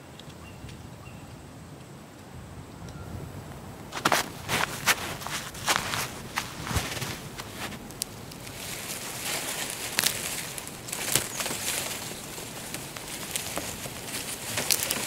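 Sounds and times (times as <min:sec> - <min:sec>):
dry reeds rustling: 0:03.3 - 0:15.0
reed stems snapping: 0:03.8 - 0:15.0.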